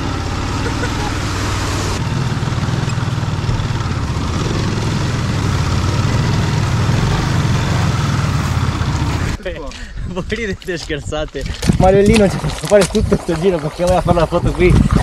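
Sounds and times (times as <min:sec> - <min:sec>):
motorcycle engine running: 0:00.0 - 0:09.4
constant rushing noise: 0:00.0 - 0:09.5.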